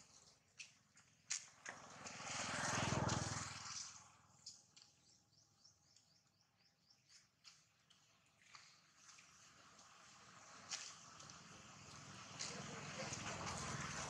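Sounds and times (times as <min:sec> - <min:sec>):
motor vehicle passing: 0:01.4 - 0:04.6, 0:09.0 - 0:14.0.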